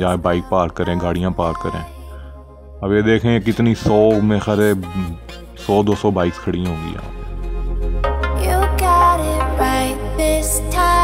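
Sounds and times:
electronic music with deep bass: 3.3s - 11.0s.

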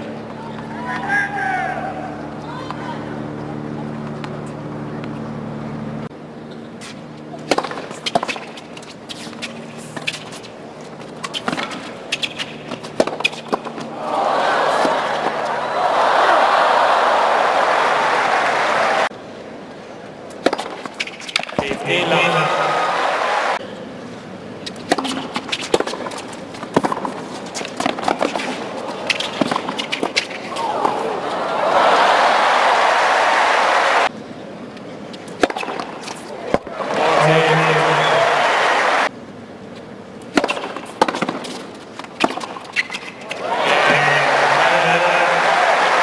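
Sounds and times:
racket hitting tennis ball: 6.8s - 13.9s, 20.4s - 22.0s, 24.6s - 31.2s, 35.2s - 36.7s, 40.3s - 45.0s
crowd applause: 13.9s - 19.1s, 21.6s - 23.6s, 30.6s - 34.1s, 36.7s - 39.1s, 43.4s - 46.0s.

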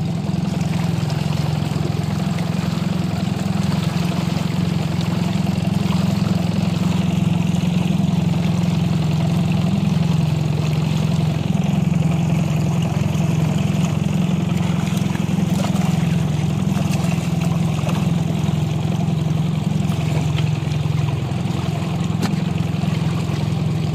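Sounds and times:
outboard motor running: 0.0s - 23.9s.

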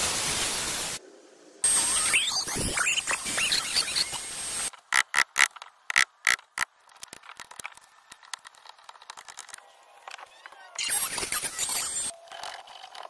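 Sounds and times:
sharp clicks: 4.8s - 9.6s.

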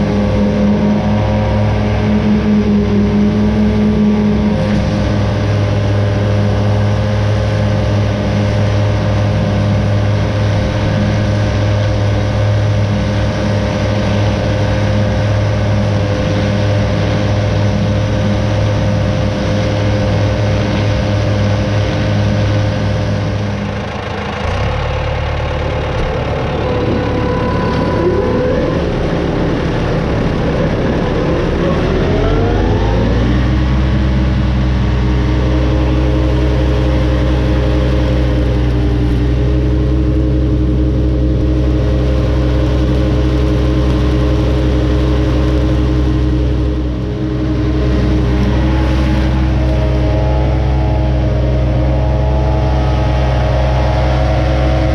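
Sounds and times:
tractor and mowers cutting grass: 0.0s - 54.9s
rising sliding pitches: 26.1s - 54.9s.

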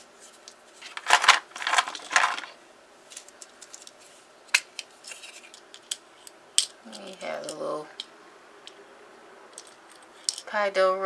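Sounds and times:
plastic containers clicking and clattering: 0.8s - 2.6s
plastic containers rattling: 0.8s - 2.6s.

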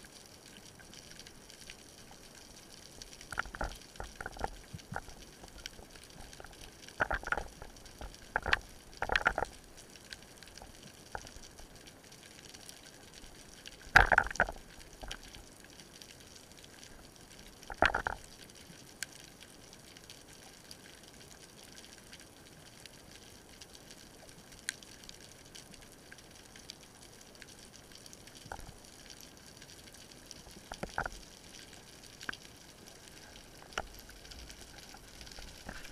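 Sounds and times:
faint steady hiss: 0.0s - 35.9s.

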